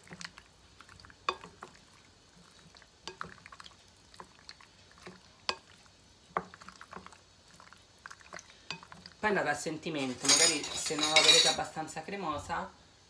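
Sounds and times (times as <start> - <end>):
utensil clinking against dish: 10.0 - 11.6.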